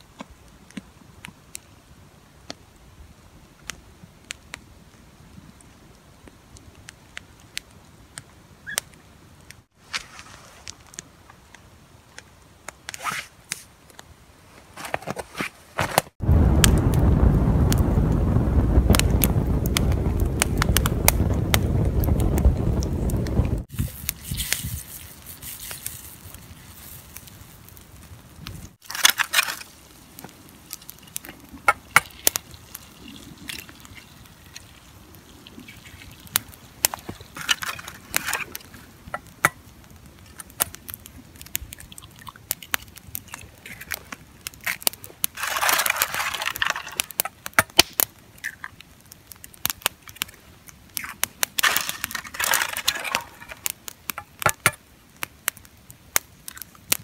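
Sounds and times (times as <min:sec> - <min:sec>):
campfire crackling and popping: 0:00.0 - 0:15.2, 0:15.8 - 0:57.0
eggs cracked into pan: 0:45.4 - 0:48.7, 0:51.0 - 0:53.7.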